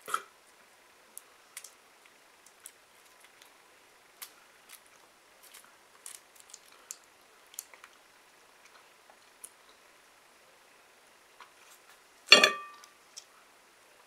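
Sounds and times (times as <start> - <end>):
sweet wrapper crinkling: 1.2 - 9.6.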